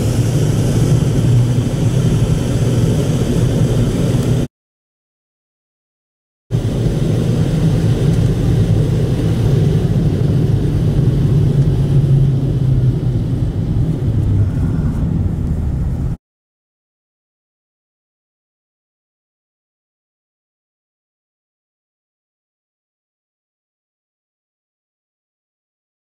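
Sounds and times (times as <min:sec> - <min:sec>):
car driving rumble inside cabin: 0:00.0 - 0:04.5, 0:06.6 - 0:16.2.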